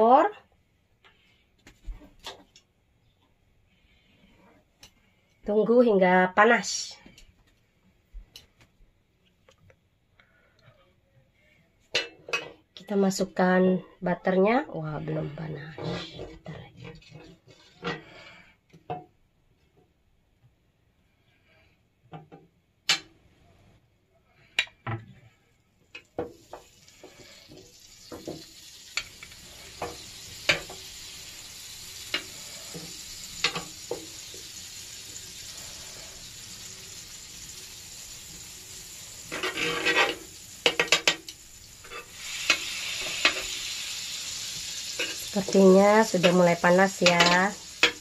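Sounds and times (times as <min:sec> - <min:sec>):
butter sizzling on grill pan: 0:26.2 - 0:48.0.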